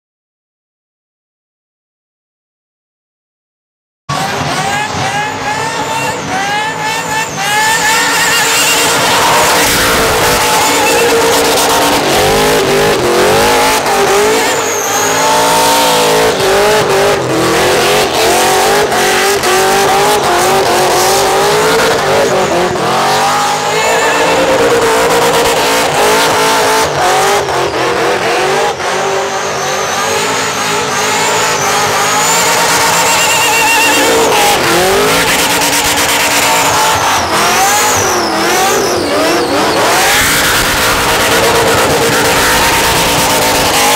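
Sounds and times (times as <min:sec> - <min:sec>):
car engine at rev limiter: 0:04.1 - 0:43.9
tyres screeching: 0:04.6 - 0:43.9.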